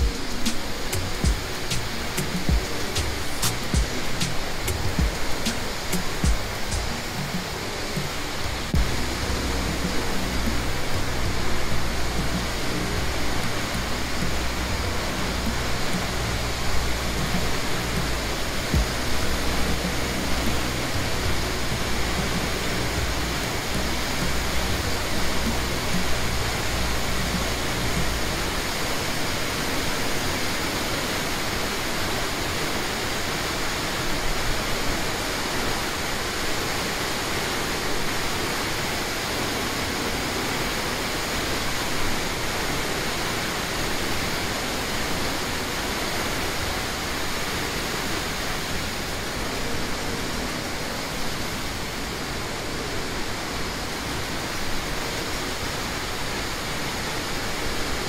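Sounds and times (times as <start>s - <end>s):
waterfall rushing: 0.0s - 58.0s
low rumble: 8.5s - 28.4s.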